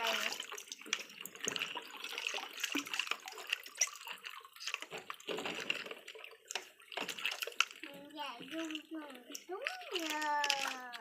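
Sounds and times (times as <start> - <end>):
small splashes: 0.0 - 11.0
water sloshing in a basin: 0.0 - 11.0
plastic toy clicks: 8.6 - 11.0.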